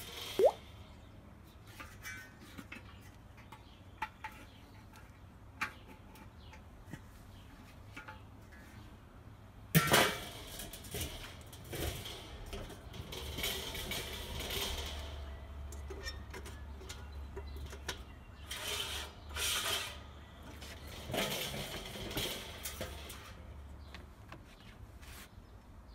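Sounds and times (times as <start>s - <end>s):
metal scraping and rattling: 9.7s - 23.6s.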